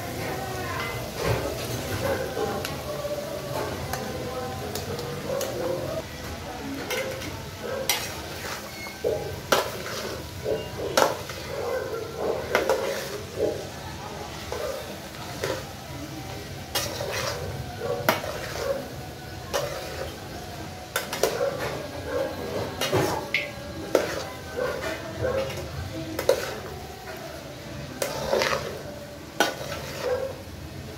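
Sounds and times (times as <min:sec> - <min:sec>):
metal spoon clinking on pot: 0:06.8 - 0:13.2, 0:16.7 - 0:17.4, 0:20.9 - 0:21.8, 0:22.8 - 0:26.7
vegetables rustling in pot: 0:06.8 - 0:30.9.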